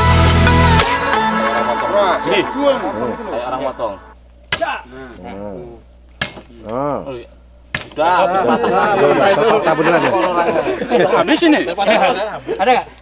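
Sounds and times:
high insect drone: 0:00.0 - 0:13.0
blade chopping into wooden pole: 0:04.5 - 0:04.8, 0:06.2 - 0:06.5.

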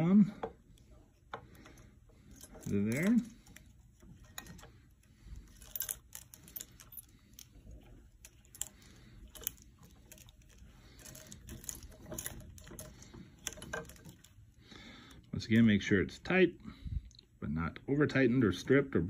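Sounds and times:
metal fittings clicking and tapping: 0:00.4 - 0:14.4.

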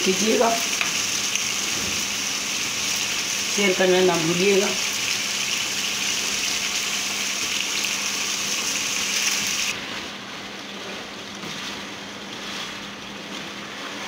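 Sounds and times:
curry sizzling in a pan: 0:00.0 - 0:09.8.

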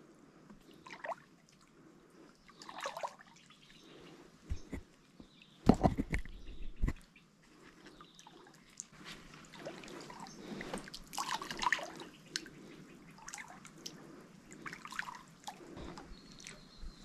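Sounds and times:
water dripping and splashing: 0:08.2 - 0:12.5.

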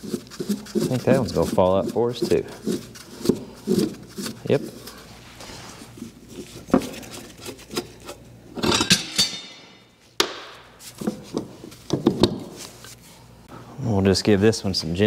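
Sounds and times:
hand tools clanking on metal: 0:08.6 - 0:09.8.

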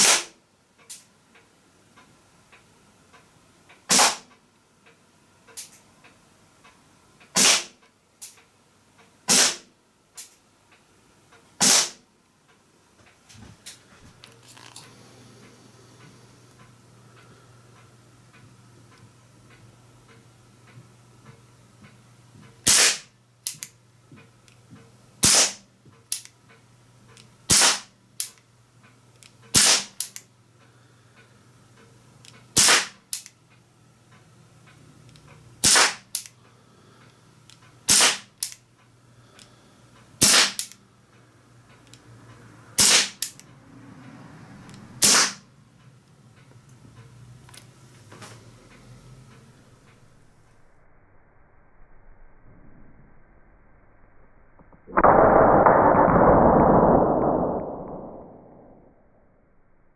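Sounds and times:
air pistol shots: 0:00.0 - 0:00.4, 0:03.9 - 0:04.3, 0:07.3 - 0:07.8, 0:09.3 - 0:09.7, 0:11.6 - 0:12.0, 0:22.6 - 0:23.1, 0:25.2 - 0:25.6, 0:27.5 - 0:27.9, 0:29.5 - 0:30.1, 0:32.6 - 0:33.0, 0:35.6 - 0:36.2, 0:37.9 - 0:38.3, 0:40.2 - 0:40.7, 0:42.8 - 0:43.4, 0:45.0 - 0:45.4, 0:54.9 - 0:58.6.

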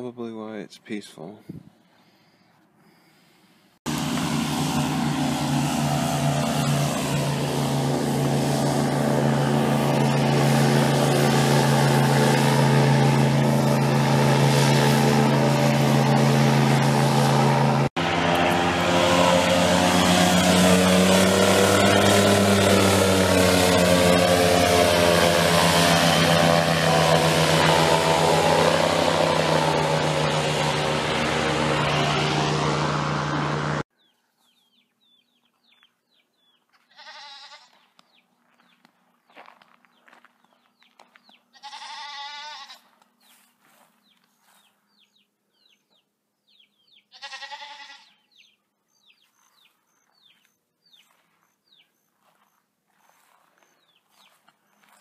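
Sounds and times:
airboat engine passing: 0:03.9 - 0:33.9
goats bleating: 0:36.8 - 0:37.9, 0:41.5 - 0:42.9, 0:47.1 - 0:48.2.

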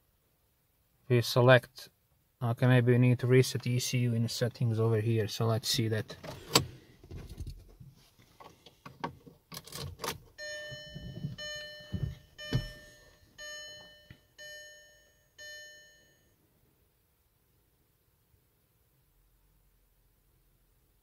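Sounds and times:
car warning chime: 0:10.4 - 0:16.4.

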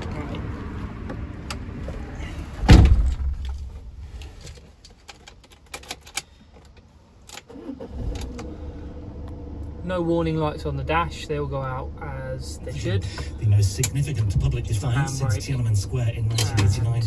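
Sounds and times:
van door shutting with thud: 0:02.6 - 0:03.6
diesel engine cranking and starting: 0:07.3 - 0:17.0.

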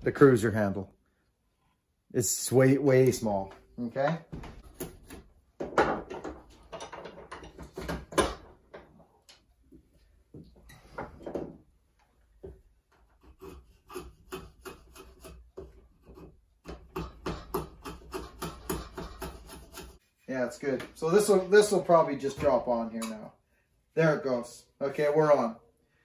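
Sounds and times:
blade shaving wooden handle: 0:13.0 - 0:20.1.

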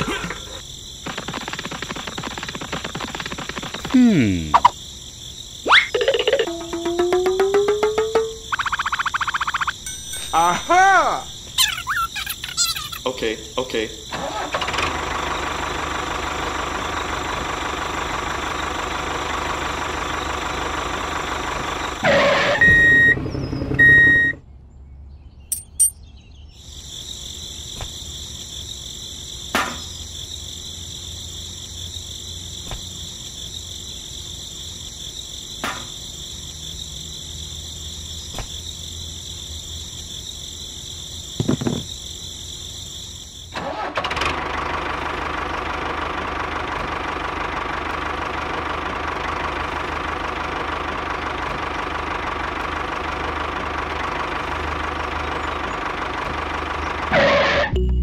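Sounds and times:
steady beep: 0:08.1 - 0:10.7.

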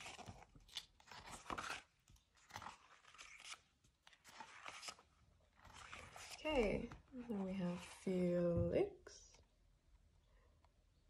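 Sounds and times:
paper pages rustling: 0:00.0 - 0:08.0.

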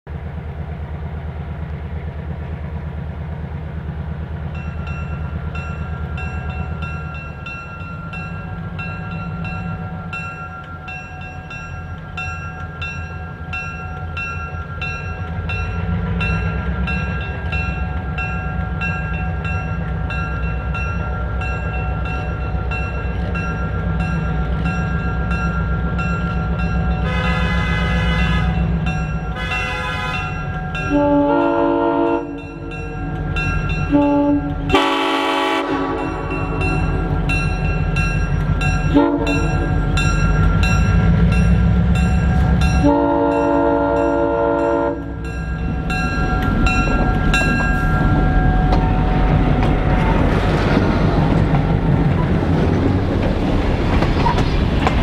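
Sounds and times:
diesel locomotive engine rumble: 0:00.0 - 0:55.0
car horn blaring: 0:27.0 - 0:28.6, 0:29.4 - 0:32.3, 0:33.9 - 0:36.2, 0:38.9 - 0:39.4, 0:42.8 - 0:45.1
bell ringing: 0:36.0 - 0:49.2.

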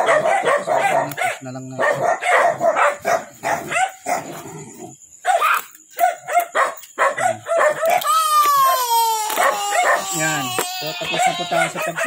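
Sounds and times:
dog barking and yipping: 0:00.0 - 0:04.6, 0:05.2 - 0:10.4, 0:11.0 - 0:12.0
dog whining: 0:09.4 - 0:10.4.

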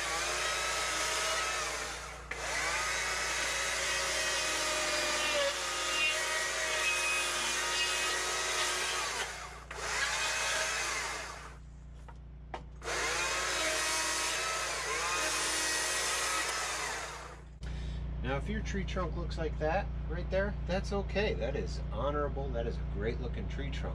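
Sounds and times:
chainsaw cutting wood: 0:00.0 - 0:11.6, 0:12.8 - 0:17.4.

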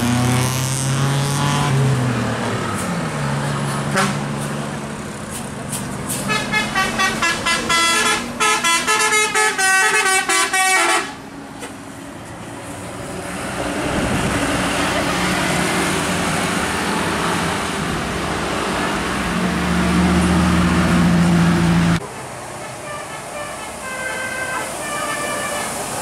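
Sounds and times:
bus and traffic rumbling: 0:00.0 - 0:26.0
bus horn playing short notes: 0:03.9 - 0:04.2, 0:06.3 - 0:11.2, 0:22.8 - 0:25.8.

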